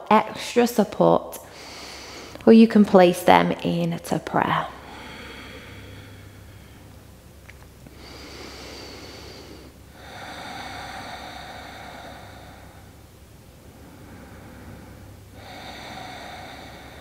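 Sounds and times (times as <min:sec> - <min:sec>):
woman breathing deeply: 0:01.4 - 0:02.4, 0:04.7 - 0:07.1, 0:07.8 - 0:17.0.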